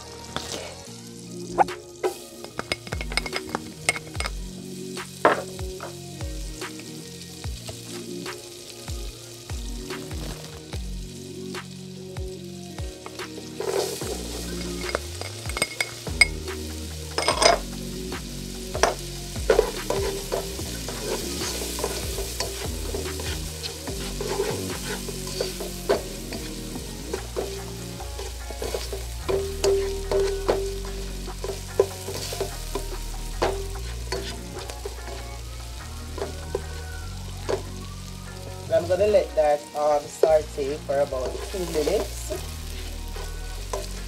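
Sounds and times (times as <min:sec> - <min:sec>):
onion and garlic sizzling: 0:00.0 - 0:44.0
spatula scraping and tapping pot: 0:02.1 - 0:04.4, 0:13.0 - 0:16.4, 0:18.8 - 0:30.7, 0:31.4 - 0:35.3.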